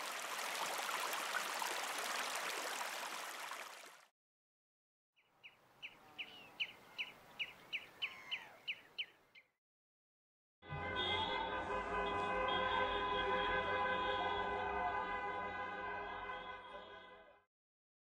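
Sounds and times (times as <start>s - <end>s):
running water rushing: 0.0s - 4.1s
bird chirping: 5.2s - 9.5s.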